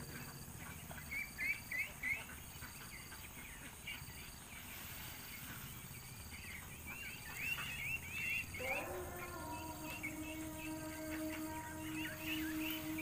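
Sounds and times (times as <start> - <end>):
ducks calling: 0.0 - 13.0
droning tone with overtones: 8.0 - 13.0.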